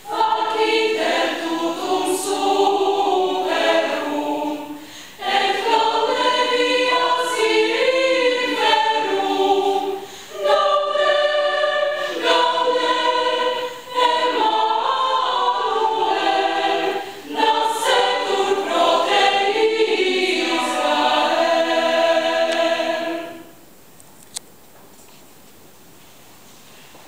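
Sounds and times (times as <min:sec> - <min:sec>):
mixed choir singing: 0:00.0 - 0:23.6.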